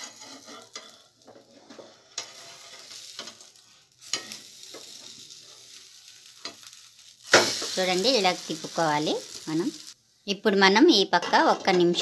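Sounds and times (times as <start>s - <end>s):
metal spatula scraping pan: 0.0s - 7.8s
pancake sizzling in frying pan: 0.0s - 10.0s.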